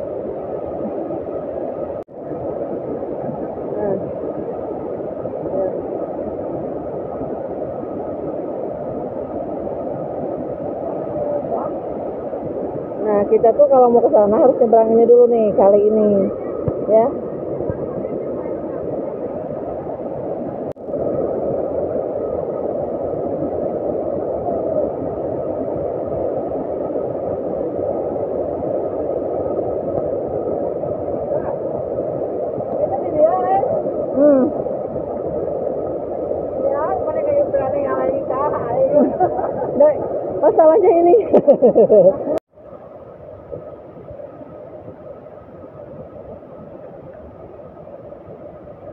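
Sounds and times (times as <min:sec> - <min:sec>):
waterfall roaring: 0:36.6 - 0:41.2.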